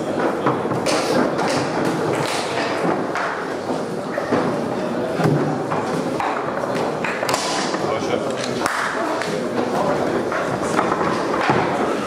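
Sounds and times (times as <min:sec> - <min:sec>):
voices in a large hall: 0:00.0 - 0:12.0
foosball ball and rods knocking: 0:05.2 - 0:07.9, 0:10.3 - 0:12.0.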